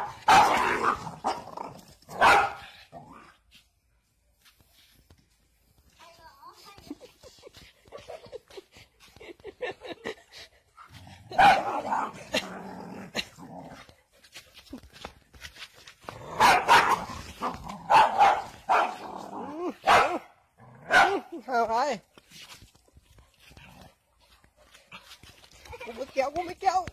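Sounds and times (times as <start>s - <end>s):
dog barking and snarling: 0.0s - 3.4s, 10.8s - 14.0s, 16.0s - 21.4s.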